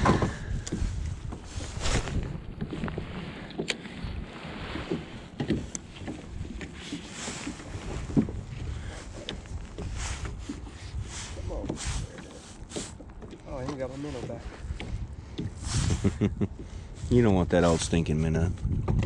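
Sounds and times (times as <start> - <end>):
light clicks and knocks from boats: 0.0 - 19.0
water lapping at boat hulls: 0.0 - 19.0
wind buffeting microphone: 0.0 - 19.0.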